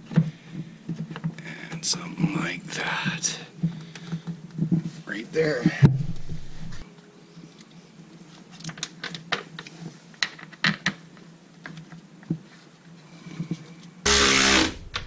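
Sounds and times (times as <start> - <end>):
power drill burst: 14.1 - 15.0.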